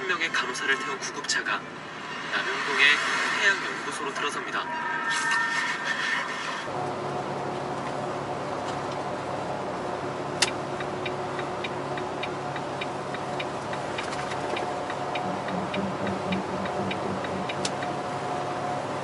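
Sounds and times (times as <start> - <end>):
turn signal ticking: 10.4 - 18.2
truck cab drone: 14.5 - 19.0.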